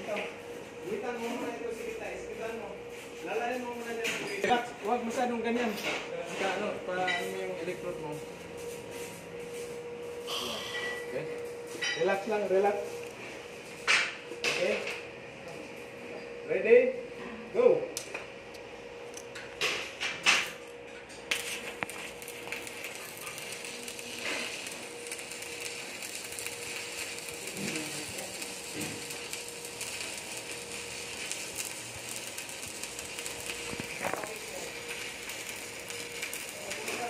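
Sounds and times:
welding arc crackling sizzle: 0.0 - 17.0, 17.6 - 37.0
welding arc striking cracks: 19.2 - 37.0.

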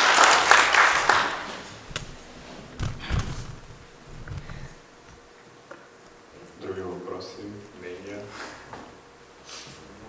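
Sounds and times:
audience applause: 0.0 - 2.4
low thumps and knocks: 0.9 - 5.3.

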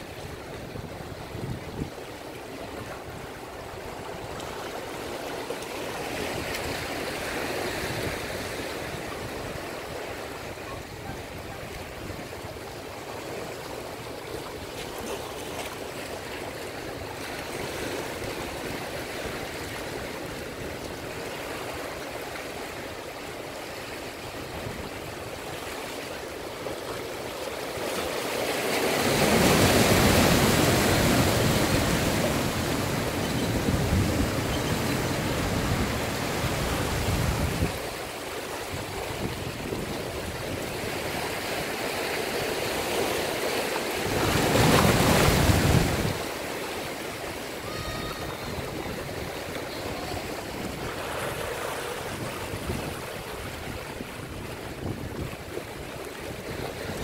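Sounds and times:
surf rushing through rocks: 0.0 - 57.0
wave breaking against rocks: 27.6 - 55.6.

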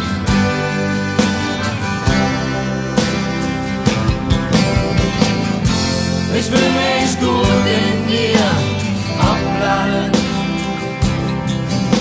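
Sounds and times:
strummed guitar: 0.0 - 12.0
drum beat: 3.9 - 6.8.

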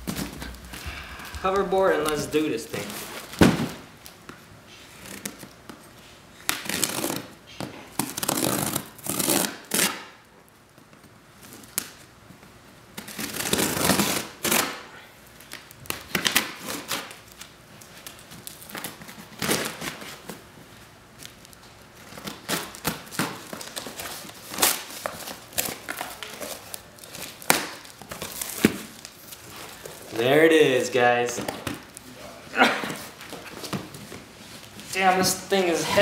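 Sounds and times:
packing tape ripping and crinkling: 4.9 - 5.8, 6.4 - 12.1, 12.9 - 30.4.

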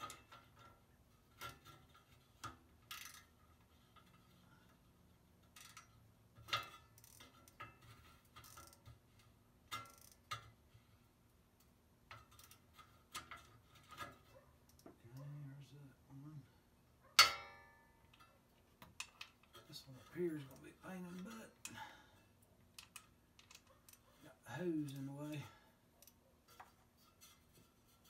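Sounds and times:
metallic clicks of tools and bolts: 0.0 - 10.8, 11.5 - 15.0, 17.1 - 24.2.

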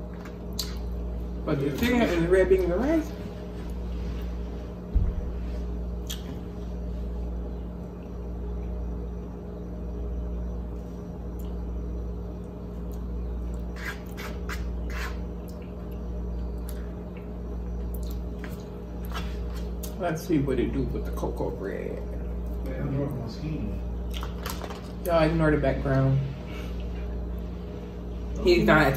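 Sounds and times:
steady low hum: 0.0 - 28.9
chewing: 12.4 - 20.0.

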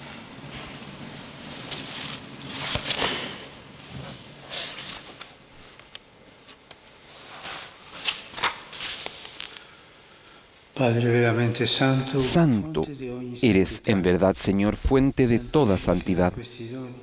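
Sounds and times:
paper pages rustling: 1.6 - 3.4, 4.0 - 9.7.

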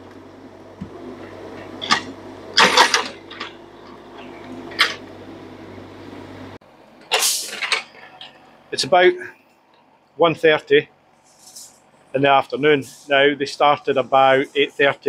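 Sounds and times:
excavator diesel engine running: 0.0 - 9.3.

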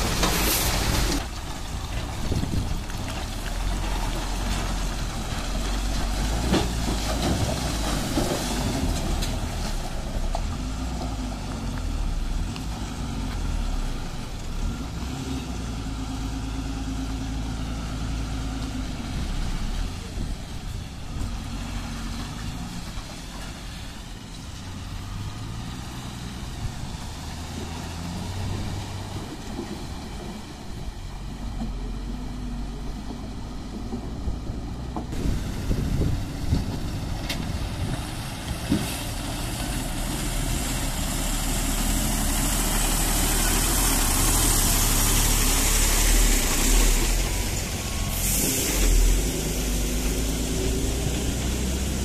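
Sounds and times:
diesel lorry engines droning: 0.0 - 52.0
tyre and road noise: 0.0 - 52.0
air brake hiss: 48.1 - 49.3.

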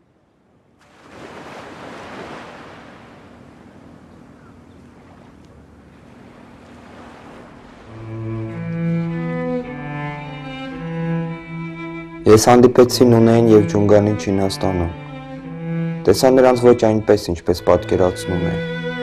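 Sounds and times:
wind: 0.0 - 14.6
waves washing onto beach: 0.8 - 8.6
bowed cello playing: 7.8 - 19.0.

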